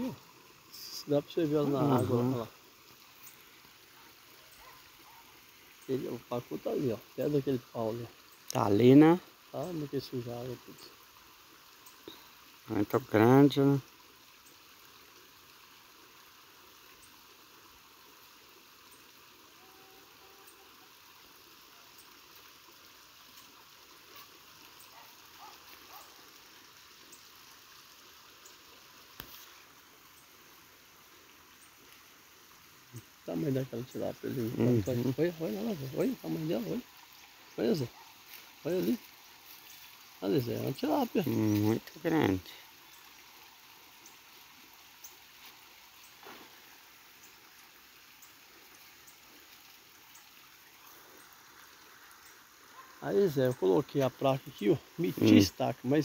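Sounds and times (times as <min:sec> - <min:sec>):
soft steady hiss: 0:00.0 - 0:56.0
faint ticks: 0:08.4 - 0:08.6.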